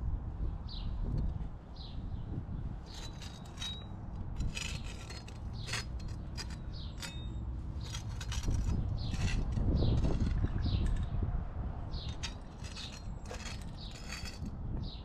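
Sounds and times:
tool scraping caulk: 2.9 - 11.0, 12.0 - 14.5.

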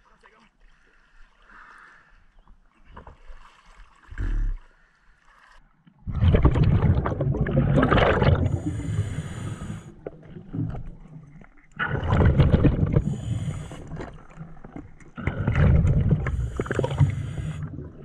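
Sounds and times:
muffled underwater rushing: 6.0 - 18.0.

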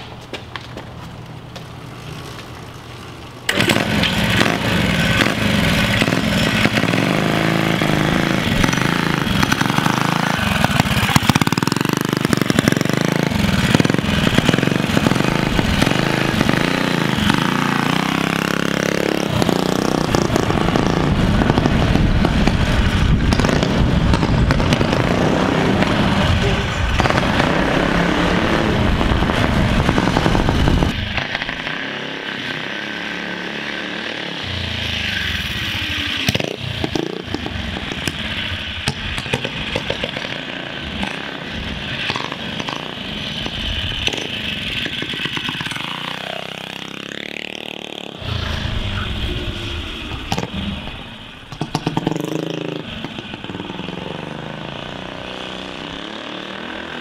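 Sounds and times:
small engine revving: 3.5 - 22.7.

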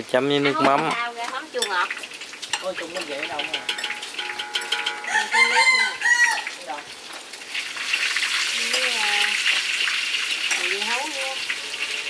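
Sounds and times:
rooster crowing: 4.7 - 6.6.

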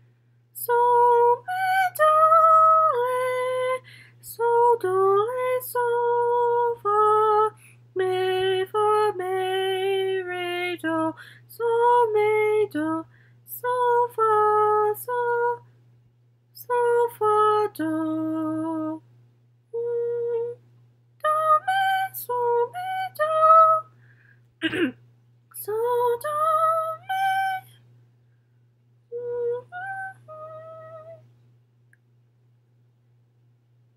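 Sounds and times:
woman singing unaccompanied: 0.6 - 15.7, 16.5 - 19.1, 19.7 - 20.6, 21.2 - 23.9, 25.5 - 27.8, 29.1 - 31.3.

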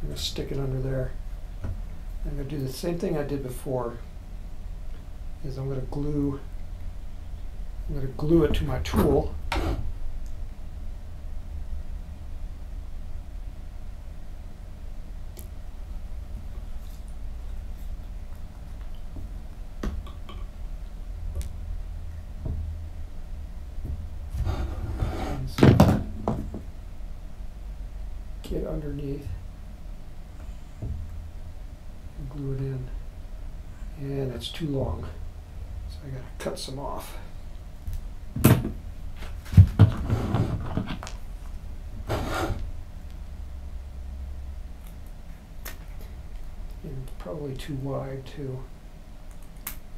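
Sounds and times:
low steady hum: 0.0 - 49.9
knocks and thumps on a mat: 25.6 - 26.7, 39.4 - 41.0.

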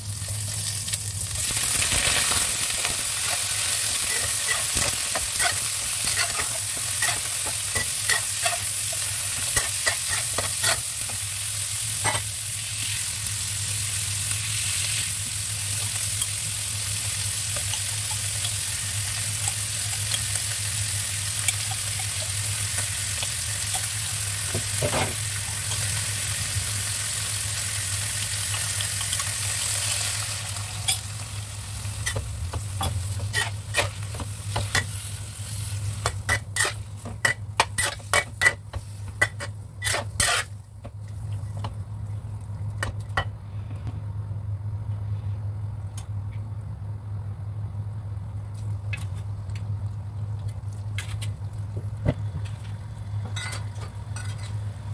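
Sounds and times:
meat sizzling in a wok: 0.0 - 40.6
steady low hum: 2.4 - 54.9
metal spatula scraping a pan: 3.9 - 11.1, 32.8 - 35.1, 35.9 - 40.6.

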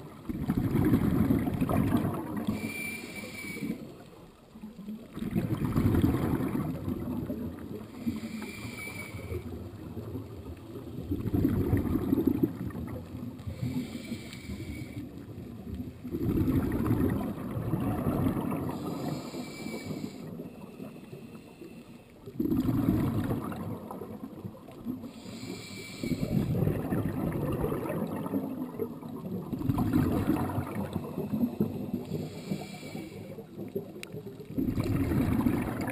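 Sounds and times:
exhaled bubbles rumbling: 0.0 - 2.7, 3.7 - 8.3, 9.3 - 13.9, 15.0 - 19.4, 22.2 - 32.4, 33.3 - 35.9
regulator hissing inhale: 2.5 - 3.9, 7.9 - 9.5, 13.4 - 15.2, 18.7 - 22.1, 25.0 - 26.5, 31.7 - 33.5.

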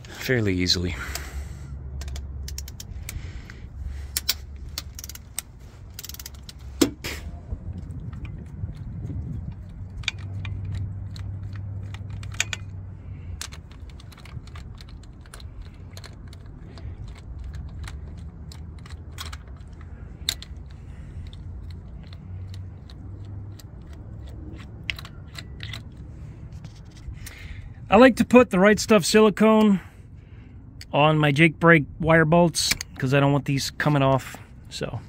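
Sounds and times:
low steady hum: 0.0 - 35.0
ratchet clicking: 2.0 - 3.2, 4.1 - 6.7, 9.5 - 12.8, 13.4 - 26.0.

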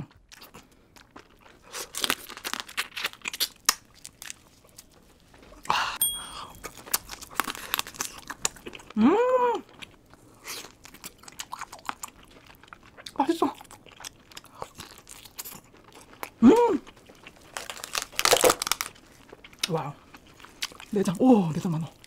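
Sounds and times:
chewing and wet smacking: 9.6 - 22.0.

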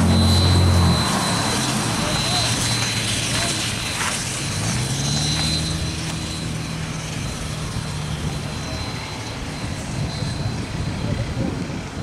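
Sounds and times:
steam locomotive moving slowly: 0.0 - 12.0.

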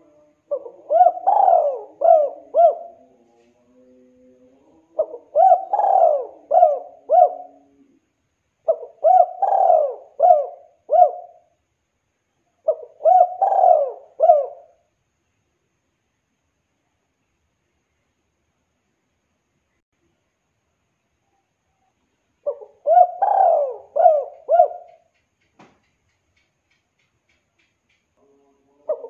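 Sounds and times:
dove cooing: 0.0 - 3.3, 3.9 - 11.6, 12.6 - 14.8, 22.4 - 25.1, 28.7 - 29.0.

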